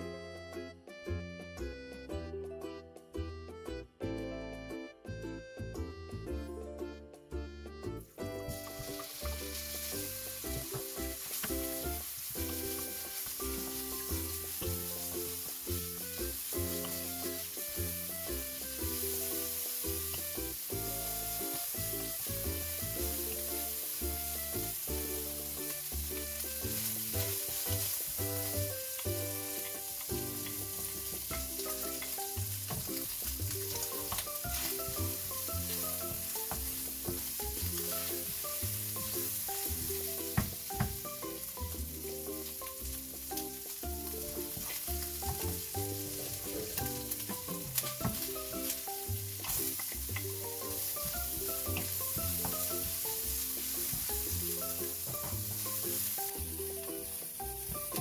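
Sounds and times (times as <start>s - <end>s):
background music with melody: 0.0s - 58.0s
bacon sizzling in a frying pan: 8.2s - 58.0s
wooden spoon scraping a pan: 8.5s - 58.0s
spoon knocking on pan: 26.7s - 41.5s, 43.4s - 48.8s, 49.4s - 56.1s.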